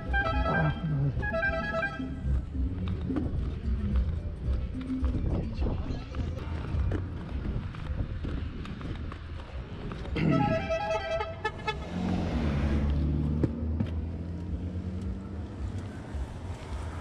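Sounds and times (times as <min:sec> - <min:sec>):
vehicle horn honking: 0:00.0 - 0:02.2, 0:10.2 - 0:12.0.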